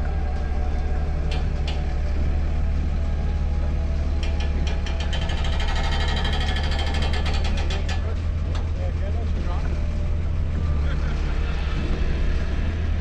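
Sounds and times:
crane engine running: 0.0 - 13.0
rapid clicking and rattling: 4.1 - 10.6.

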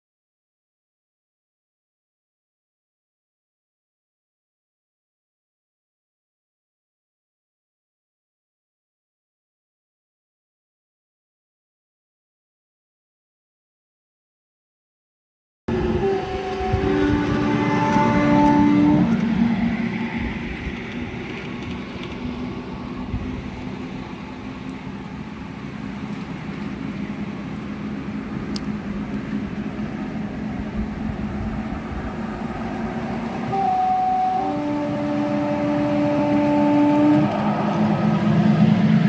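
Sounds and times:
two-tone train horn: 15.7 - 19.9, 33.0 - 38.7
miniature train rumbling: 15.7 - 39.0.

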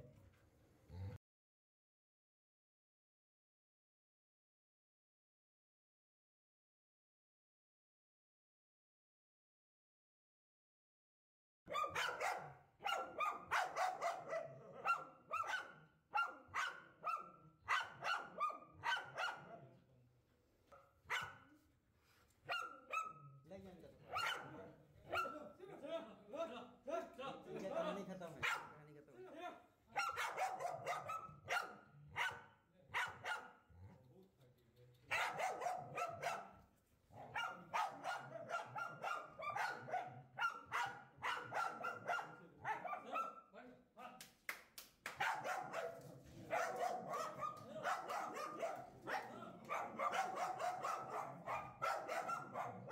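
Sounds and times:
dogs barking: 11.7 - 19.6, 21.1 - 21.5, 22.5 - 23.3, 24.1 - 25.5, 28.4 - 28.8, 30.0 - 33.7, 35.1 - 36.6, 37.2 - 43.5, 45.2 - 52.9.

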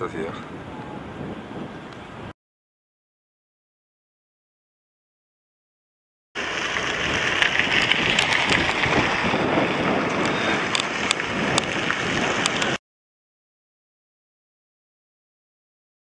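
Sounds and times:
wind on microphone: 0.0 - 2.3, 6.6 - 12.8.

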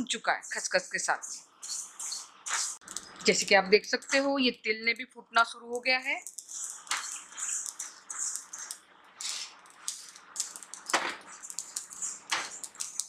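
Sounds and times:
spatula stirring and scraping: 1.6 - 4.4, 6.2 - 13.0
seeds popping and crackling: 1.6 - 4.5, 5.8 - 13.0.

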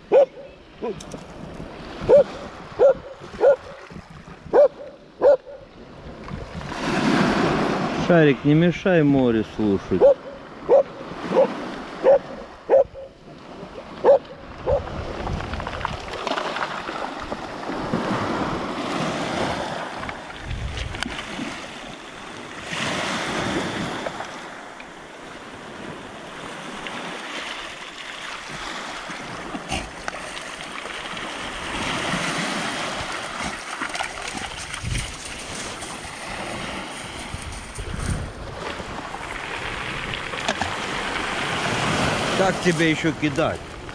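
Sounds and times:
dog barking: 0.1 - 1.0, 2.1 - 3.8, 4.5 - 5.7, 10.0 - 13.2, 14.0 - 14.8
waves washing over pebbles: 5.9 - 43.9.

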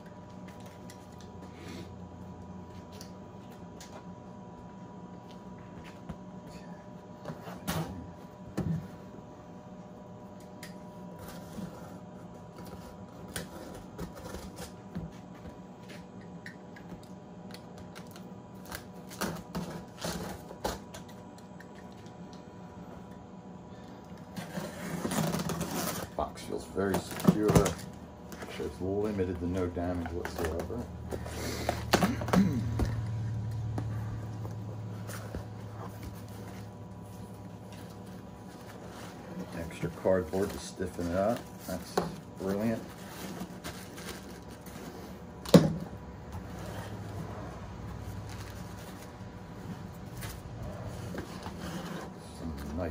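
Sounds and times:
steady low hum: 0.0 - 52.9
packing tape and cardboard tearing: 10.4 - 15.1, 16.8 - 22.1, 24.1 - 52.9.

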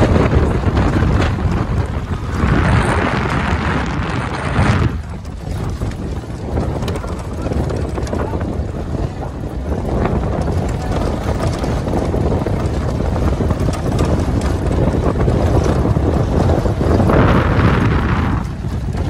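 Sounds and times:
engine and tyres rumbling: 0.0 - 19.0
gravel rattling and clicking: 0.0 - 19.0
wind buffeting microphone: 0.0 - 19.0.

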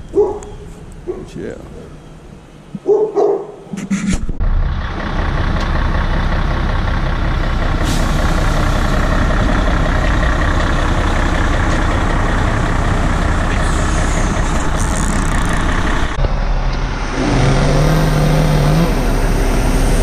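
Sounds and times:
dog barking: 0.1 - 1.4, 2.8 - 3.6
crane diesel engine running: 4.4 - 20.0.

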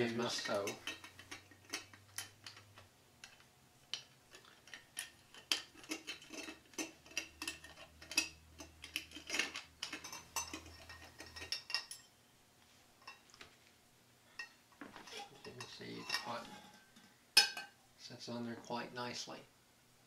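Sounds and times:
metal stove parts clinking: 0.0 - 12.1, 14.4 - 17.8.

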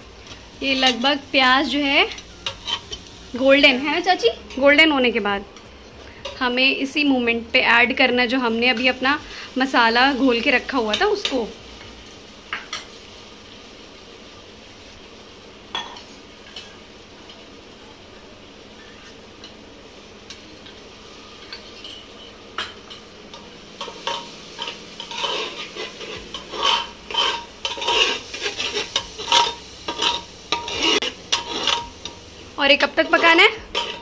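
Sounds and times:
onions sizzling in a pot: 0.0 - 34.0
metal ladle scraping a pot: 2.2 - 3.1, 23.8 - 31.9, 33.0 - 34.0.

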